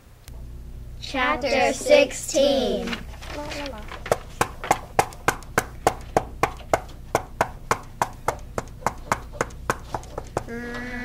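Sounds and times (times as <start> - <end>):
sharp knocks at an even pace: 4.1 - 10.5.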